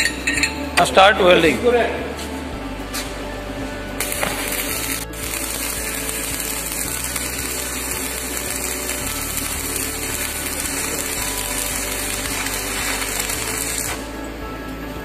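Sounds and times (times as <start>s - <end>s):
welding arc crackling: 4.0s - 14.2s.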